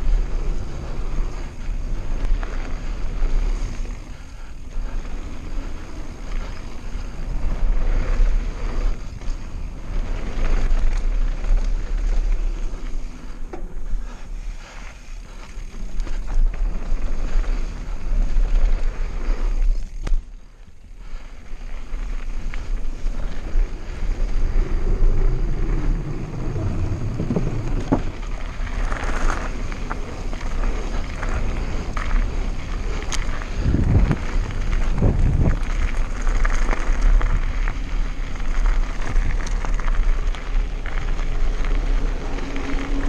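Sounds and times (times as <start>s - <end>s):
tyre noise on dirt: 0.0s - 43.0s
wind rushing over microphone: 21.8s - 43.0s
bike knocks and rattles: 26.1s - 29.8s.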